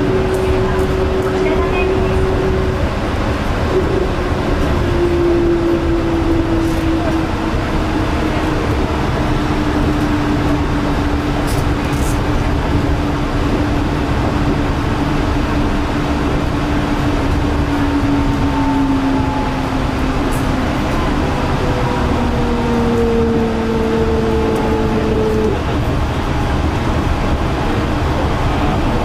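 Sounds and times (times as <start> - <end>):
train motor whine: 0.0 - 27.7
train rumbling: 0.0 - 29.0.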